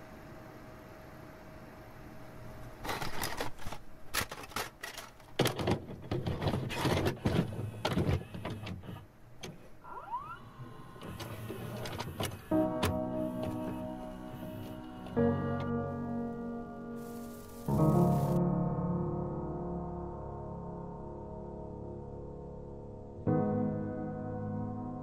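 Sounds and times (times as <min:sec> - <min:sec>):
faint hiss: 0:09.6 - 0:18.4.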